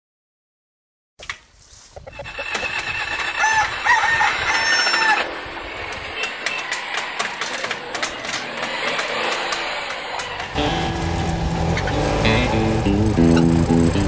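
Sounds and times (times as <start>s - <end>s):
steady outdoor hiss: 1.2s - 14.0s
rooster crowing: 2.9s - 8.0s
scattered clicks: 5.8s - 10.6s.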